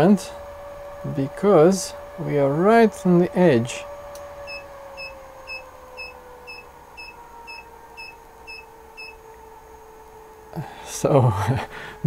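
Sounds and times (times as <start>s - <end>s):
faint steady hum: 0.0s - 12.0s
short high alarm beeps: 4.4s - 9.2s.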